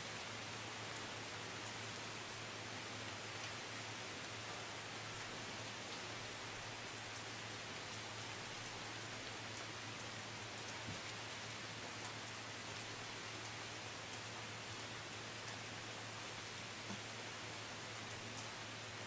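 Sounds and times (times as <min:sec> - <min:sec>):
steady rain falling: 0:00.0 - 0:19.0.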